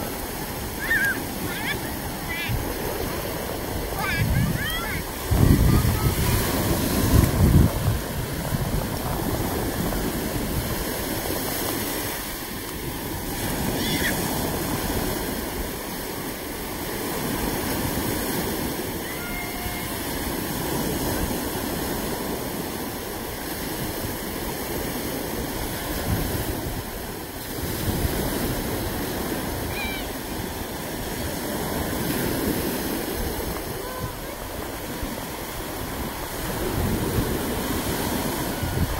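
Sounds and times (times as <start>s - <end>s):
small waves washing on sand: 0.0s - 38.9s
wind buffeting microphone: 0.0s - 38.9s.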